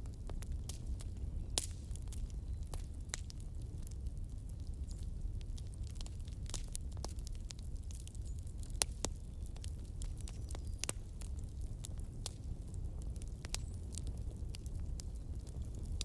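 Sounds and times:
wood fire crackling and popping: 0.0 - 16.0.

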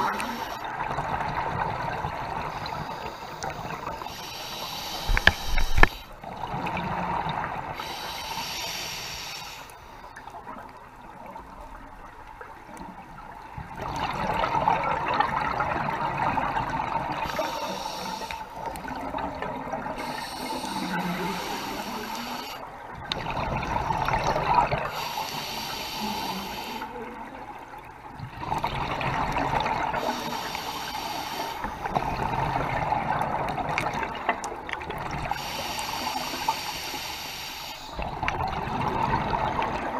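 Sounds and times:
regulator inhalation: 0.0 - 0.7, 2.7 - 6.2, 7.8 - 10.0, 17.2 - 18.6, 20.0 - 22.6, 24.9 - 26.9, 30.0 - 32.0, 35.3 - 38.0
exhaled bubbles gurgling: 0.0 - 9.6, 10.2 - 39.9.

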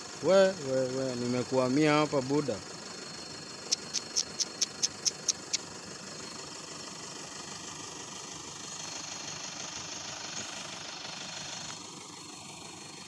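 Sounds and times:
diesel engine idling: 0.0 - 13.0
sharp high ticks: 3.6 - 5.7.

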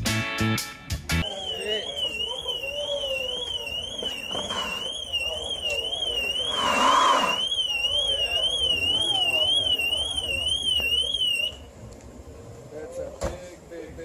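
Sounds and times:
car alarm warbling: 1.2 - 11.6
faint voices: 1.2 - 14.0.

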